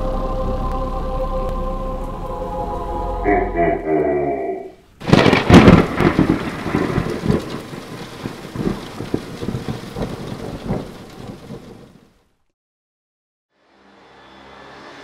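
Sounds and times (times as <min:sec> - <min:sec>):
rain-like hiss: 0:04.8 - 0:12.4
thunder crack and rumbling: 0:05.0 - 0:12.0.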